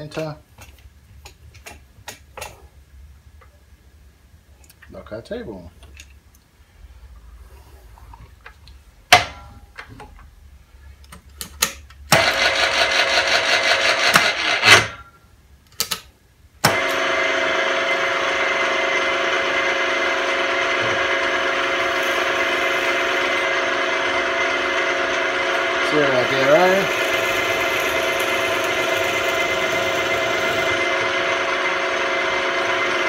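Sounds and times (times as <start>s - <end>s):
milling machine motor running: 12.2s - 14.8s, 16.7s - 33.0s.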